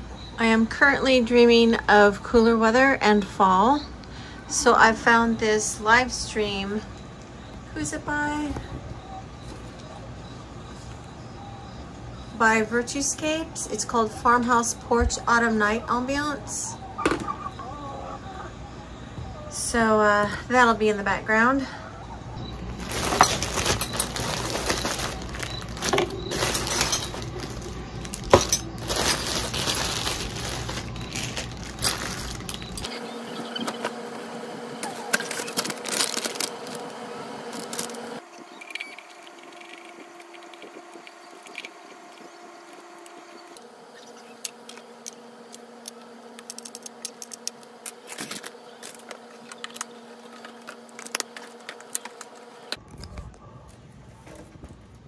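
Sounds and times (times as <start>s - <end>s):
faint steady hum: 0.0s - 55.0s
plastic zip bag crinkling: 22.6s - 32.9s, 35.0s - 38.2s
small plastic parts clicking: 44.4s - 49.9s.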